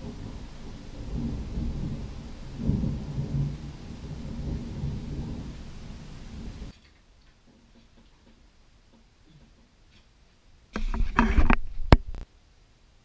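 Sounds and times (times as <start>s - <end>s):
thunder rumbling: 0.0s - 6.7s.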